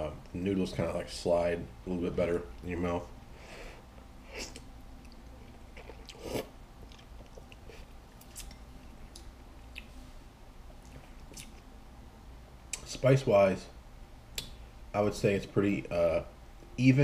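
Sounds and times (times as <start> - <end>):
quiet chewing with wet smacks: 4.5 - 11.7.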